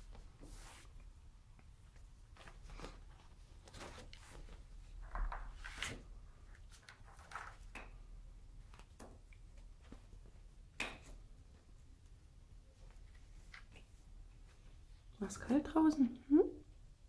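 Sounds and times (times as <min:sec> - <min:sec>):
kittens rustling on blanket: 0:00.0 - 0:04.9.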